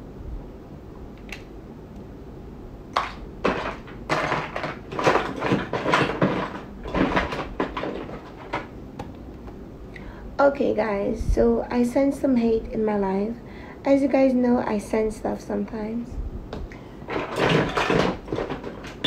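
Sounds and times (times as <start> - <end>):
objects rustling and knocking: 2.9 - 9.5, 16.6 - 19.0.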